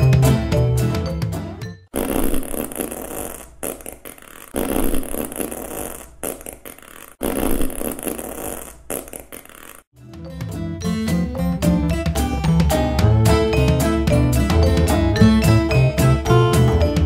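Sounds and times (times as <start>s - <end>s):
cartoon noisy blasts: 2.0s - 9.8s.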